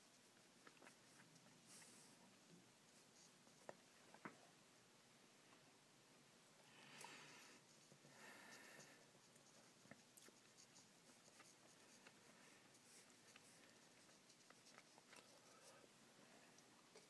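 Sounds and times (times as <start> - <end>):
paintbrush scratching on paper: 7.6 - 15.8.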